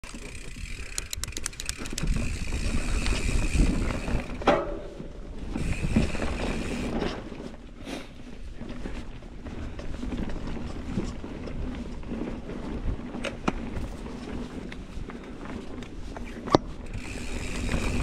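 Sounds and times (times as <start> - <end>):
rapid rattling clicks: 0.0 - 4.4
bike tyres rumbling over dirt: 0.0 - 18.0
wind on microphone: 0.3 - 7.1.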